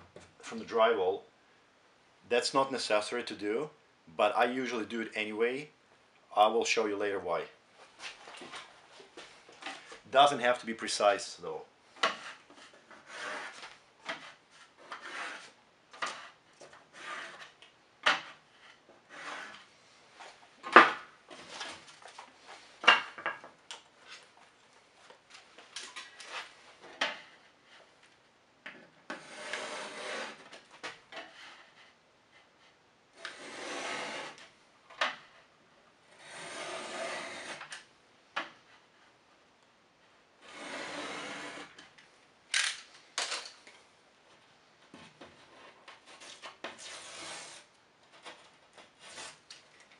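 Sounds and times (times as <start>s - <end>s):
metal knife scraping drywall: 12.0s - 17.6s, 18.2s - 19.7s, 29.1s - 30.6s, 33.2s - 34.4s, 36.2s - 37.7s, 40.4s - 41.8s, 45.5s - 49.5s.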